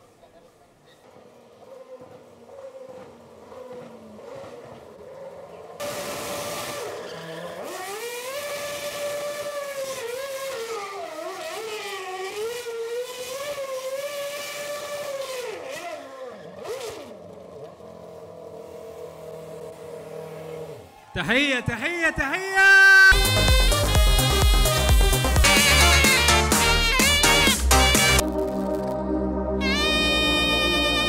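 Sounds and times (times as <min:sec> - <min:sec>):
race car engine revving: 0:01.3 - 0:21.1.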